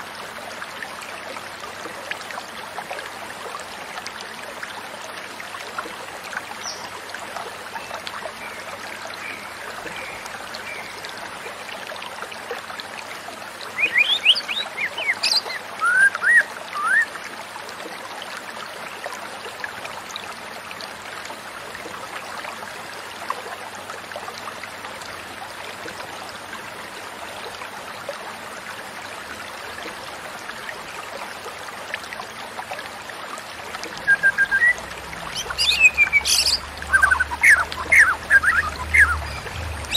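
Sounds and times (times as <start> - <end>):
stream running water: 0.0 - 39.9
bird singing whistled phrases: 13.8 - 17.1, 34.0 - 39.9.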